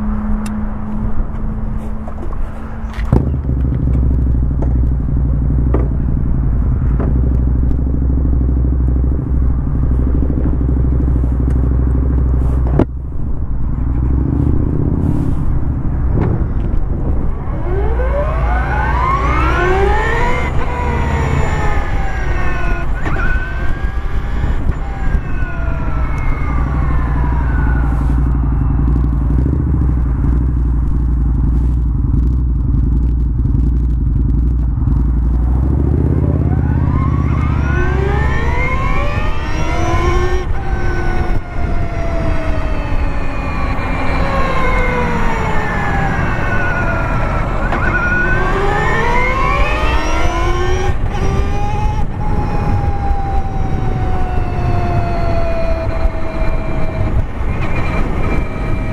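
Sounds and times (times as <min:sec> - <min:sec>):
motorcycle engine rumble: 0:00.0 - 0:58.9
electric motor whine: 0:17.3 - 0:29.6, 0:37.2 - 0:58.9.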